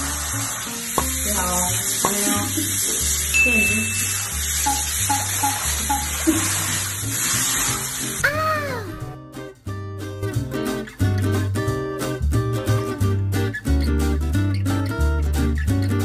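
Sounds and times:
shower spraying water: 0:00.0 - 0:08.3
background music: 0:00.0 - 0:16.0.

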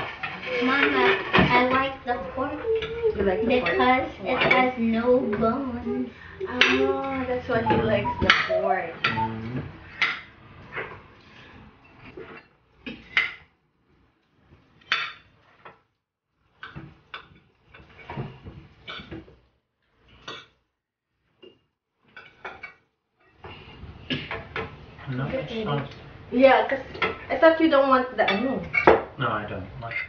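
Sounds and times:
cutlery clinking on plates: 0:16.6 - 0:19.3, 0:21.4 - 0:23.5, 0:28.2 - 0:29.1.

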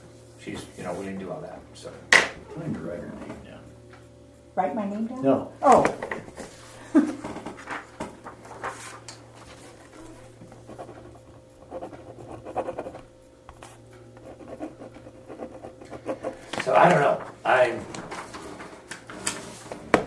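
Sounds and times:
faint electrical hum: 0:00.0 - 0:20.0
pen scratching on paper: 0:10.7 - 0:16.5.

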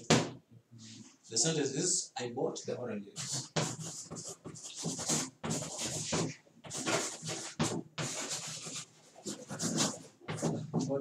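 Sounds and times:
chalk scratching on blackboard: 0:03.2 - 0:11.0.

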